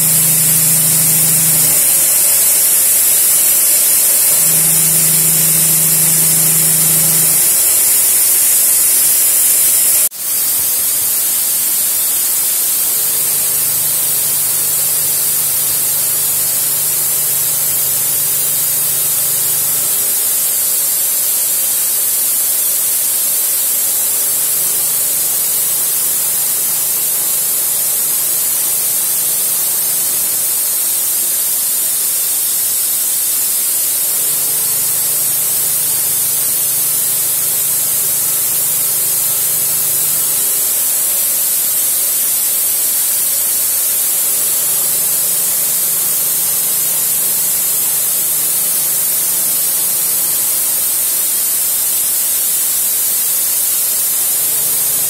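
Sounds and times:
low machine hum: 0:00.0 - 0:10.1
compressed air hissing: 0:00.0 - 0:55.0.

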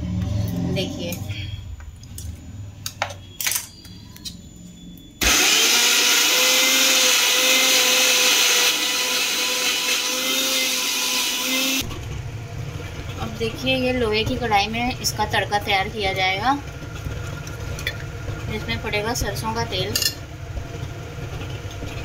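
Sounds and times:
mixer grinder motor whining: 0:05.2 - 0:13.6.

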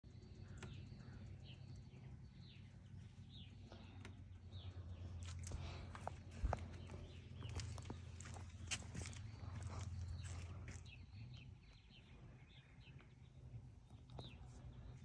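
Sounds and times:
bird chirping: 0:00.0 - 0:15.0
faint low hum: 0:00.0 - 0:15.0
footstep scuffs and clicks: 0:05.2 - 0:11.9.

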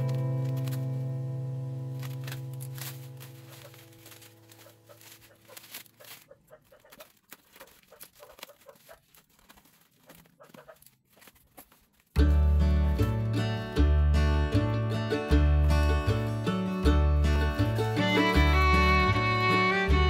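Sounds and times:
bubble wrap and cardboard crinkling: 0:00.0 - 0:01.1, 0:01.8 - 0:12.6
guitar music: 0:00.0 - 0:05.4, 0:12.2 - 0:20.0.

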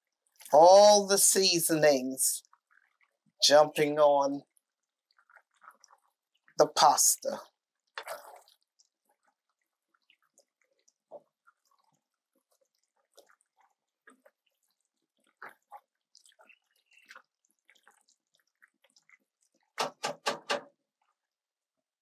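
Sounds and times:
sauce bubbling in pot: 0:02.4 - 0:03.4, 0:04.4 - 0:20.0, 0:20.8 - 0:21.8.

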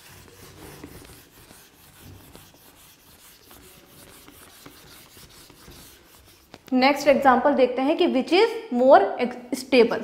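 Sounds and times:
eraser rubbing on whiteboard: 0:00.0 - 0:06.8.

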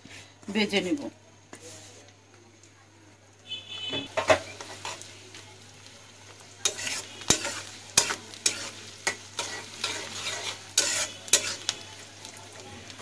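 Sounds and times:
onion and garlic sizzling in oil: 0:00.0 - 0:13.0
metal spatula scraping a pan: 0:04.0 - 0:05.1, 0:06.6 - 0:12.1.

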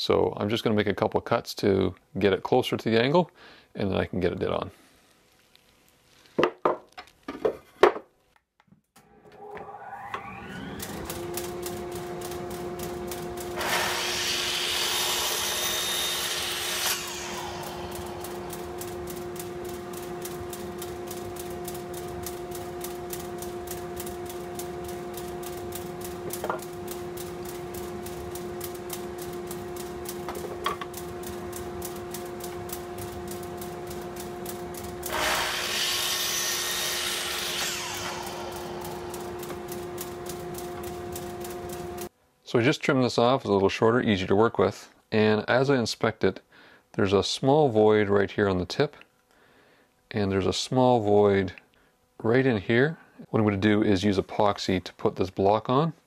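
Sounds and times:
saw motor humming: 0:09.3 - 0:42.1
saw blade cutting wood: 0:09.4 - 0:19.9, 0:35.0 - 0:39.9.

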